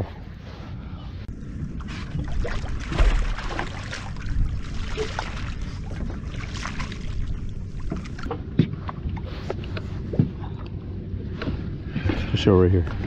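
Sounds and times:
wind on microphone: 0:00.0 - 0:12.1
water slapping boat hull: 0:01.4 - 0:13.0.

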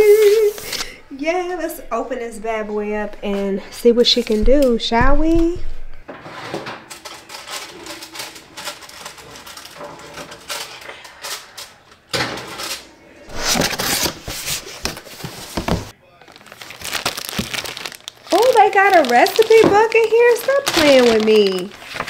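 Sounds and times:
cardboard box unpacking: 0:13.3 - 0:22.0.

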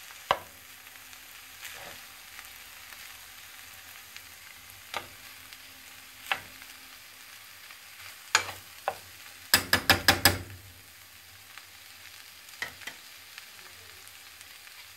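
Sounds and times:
frying sizzle: 0:00.0 - 0:14.9
spoon stirring in frying pan: 0:00.1 - 0:00.6, 0:01.5 - 0:02.2, 0:03.9 - 0:07.0, 0:07.6 - 0:10.6, 0:12.5 - 0:13.2
spoon clicking against pan: 0:09.6 - 0:10.5.

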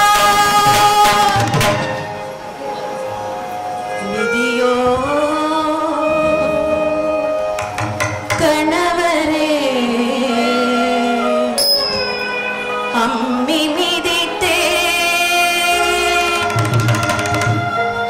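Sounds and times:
instrumental accompaniment: 0:00.0 - 0:18.0
voice singing long gliding notes: 0:03.0 - 0:07.7, 0:08.4 - 0:16.6
drum strokes: 0:07.5 - 0:08.9, 0:16.4 - 0:18.0.

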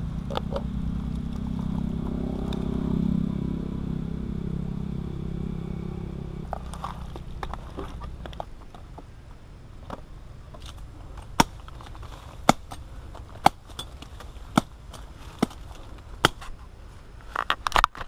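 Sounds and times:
knife chopping woody stem: 0:11.4 - 0:16.5.

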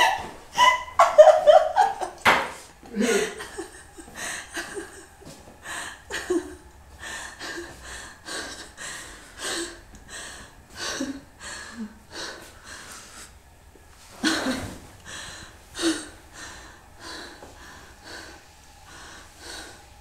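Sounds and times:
woman laughing quietly: 0:00.0 - 0:09.8, 0:14.0 - 0:17.4.

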